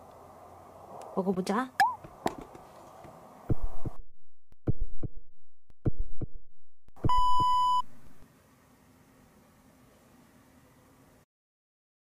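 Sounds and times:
heartbeat thumps: 0:03.5 - 0:04.0, 0:04.6 - 0:05.2, 0:05.8 - 0:06.4, 0:07.0 - 0:08.2.

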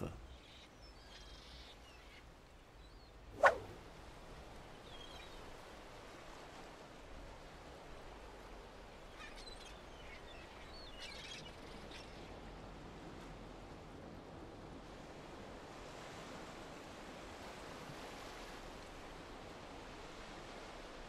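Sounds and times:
wind and sea rushing: 0:03.2 - 0:09.1, 0:12.2 - 0:21.0.

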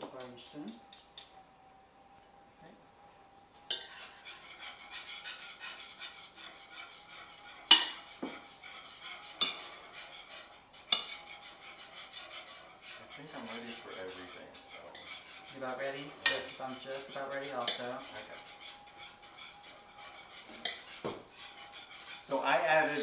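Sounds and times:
spoon stirring food in bowl: 0:03.6 - 0:23.0
spoon clinking against bowl: 0:20.6 - 0:20.9.

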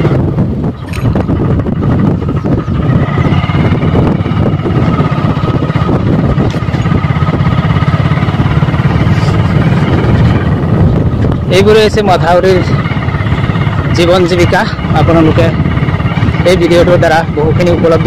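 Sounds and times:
vehicle engine drone: 0:00.0 - 0:18.0.

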